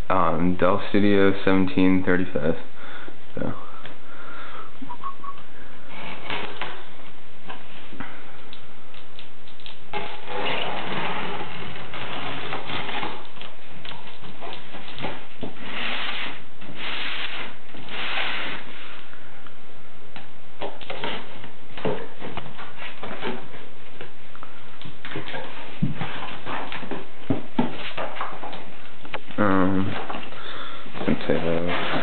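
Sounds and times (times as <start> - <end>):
packing tape scraping: 5.9 - 7.7, 8.5 - 19.1, 29.6 - 32.0
cardboard box sliding: 15.6 - 19.0.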